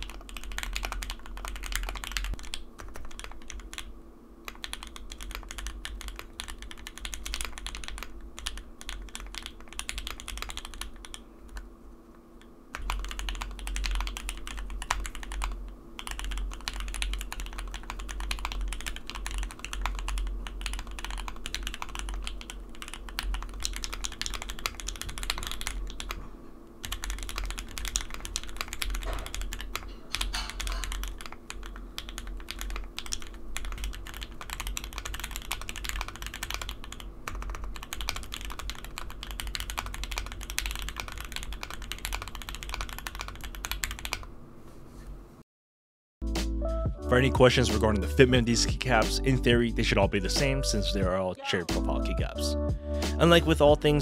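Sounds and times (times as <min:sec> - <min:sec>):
fast typing on mechanical keyboard: 0:00.0 - 0:03.9, 0:04.5 - 0:11.6, 0:12.7 - 0:26.2, 0:26.8 - 0:44.3.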